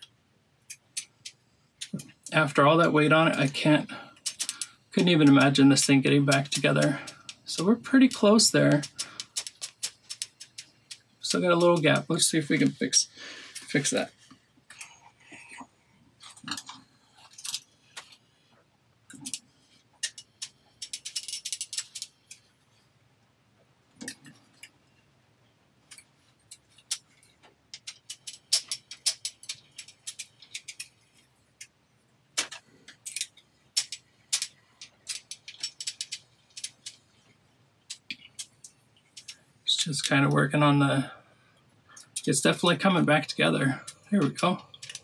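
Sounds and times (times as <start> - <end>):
metal bracelet clicking and clinking: 20.0 - 22.4, 32.4 - 37.0.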